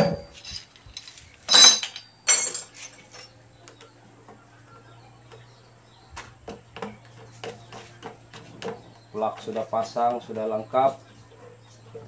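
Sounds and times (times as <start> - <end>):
metal tools clinking: 0.0 - 3.5.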